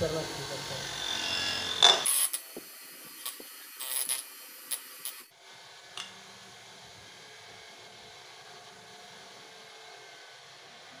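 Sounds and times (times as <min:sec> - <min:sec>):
steady hiss: 0:00.0 - 0:05.3.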